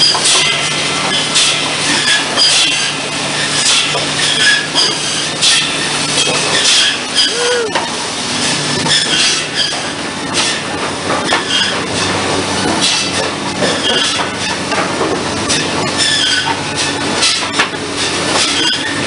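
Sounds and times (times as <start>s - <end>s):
low machine hum: 0.0s - 19.0s
mill machinery clattering: 0.0s - 19.0s
short squeak: 3.4s - 7.4s.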